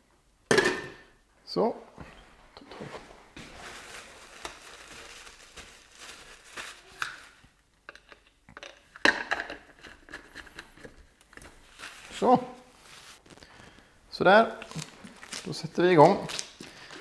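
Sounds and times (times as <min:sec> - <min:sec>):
paper towel rustling: 0:02.2 - 0:07.4, 0:11.6 - 0:13.6.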